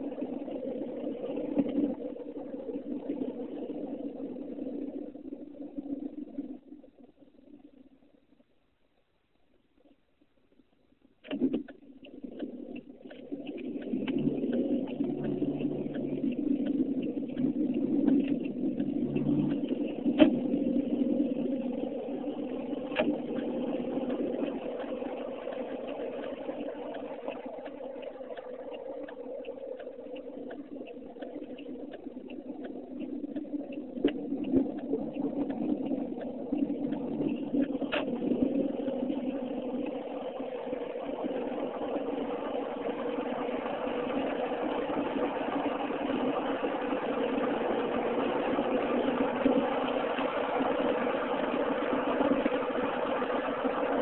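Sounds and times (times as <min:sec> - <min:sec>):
low engine drone: 0:00.0 - 0:08.2, 0:11.7 - 0:54.0
car engine and road noise: 0:00.0 - 0:54.0.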